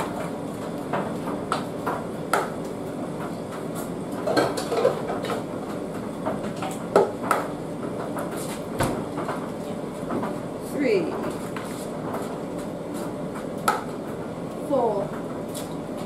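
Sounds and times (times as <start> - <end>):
kitchenware knocking and clinking: 4.2 - 5.3.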